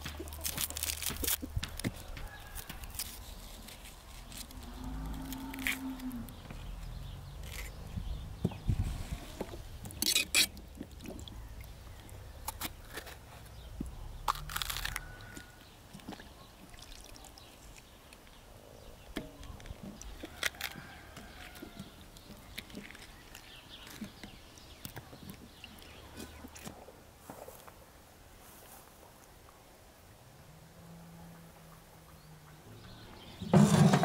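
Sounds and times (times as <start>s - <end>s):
vegetables being cut by hand: 0.0s - 6.4s, 7.4s - 7.8s.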